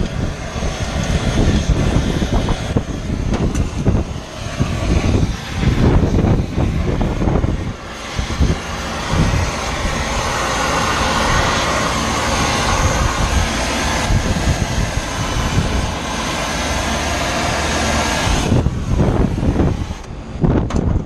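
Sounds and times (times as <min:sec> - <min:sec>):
torch flame hissing: 0:00.0 - 0:21.0.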